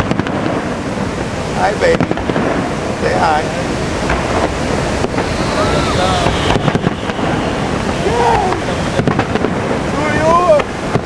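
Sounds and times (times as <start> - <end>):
fireworks banging: 0.0 - 11.0
water rushing: 0.0 - 11.0
wind on microphone: 0.0 - 11.0
voices exclaiming: 3.0 - 10.7.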